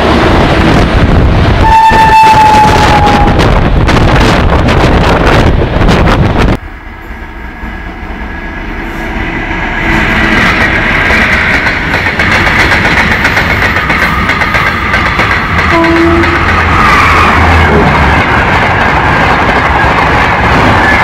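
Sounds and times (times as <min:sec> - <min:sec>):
freight train wheels clattering: 0:09.6 - 0:21.0
high-pitched ring of locomotive: 0:15.7 - 0:16.5.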